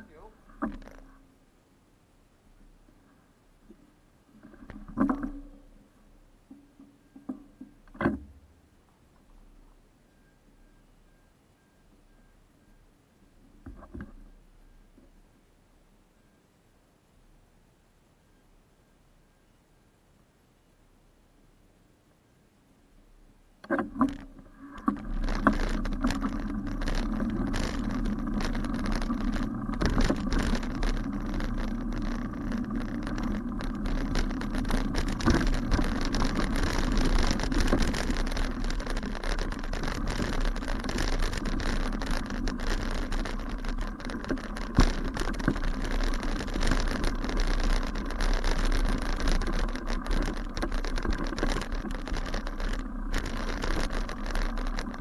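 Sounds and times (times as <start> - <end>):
bicycle frame rattling: 0.0 - 1.2, 23.7 - 55.0
wind noise on microphone: 23.7 - 55.0.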